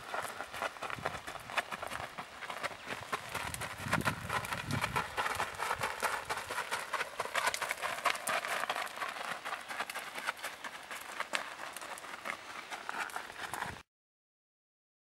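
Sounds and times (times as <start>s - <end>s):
horse hoofbeats on gravel: 0.0s - 13.8s.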